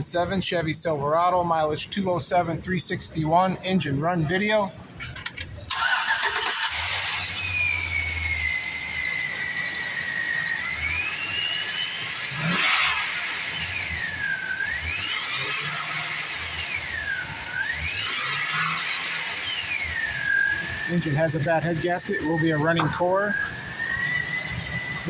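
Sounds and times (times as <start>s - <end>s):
truck engine running: 4.9s - 25.0s
high whine changing pitch: 6.2s - 25.0s.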